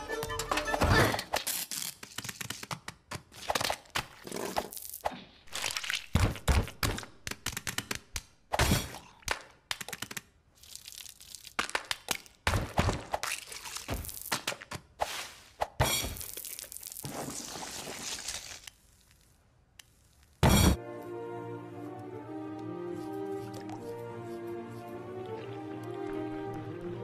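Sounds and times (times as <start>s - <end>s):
cartoon cracks and crunches: 1.2s - 14.7s, 16.2s - 19.3s.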